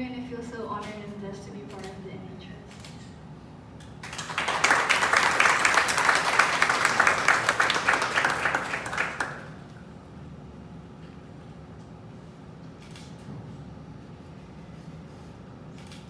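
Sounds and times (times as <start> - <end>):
audience applauding: 4.0 - 9.6.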